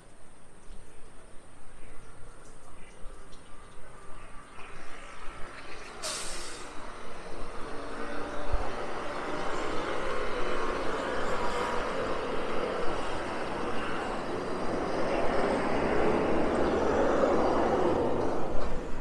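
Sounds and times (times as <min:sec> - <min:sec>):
city street traffic: 0:00.0 - 0:19.0
vehicle passing close: 0:04.7 - 0:19.0.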